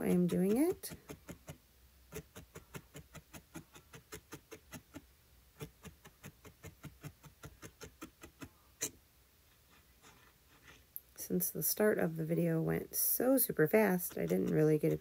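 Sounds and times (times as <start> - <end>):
felting needle clicking: 0.0 - 5.0, 5.6 - 8.5.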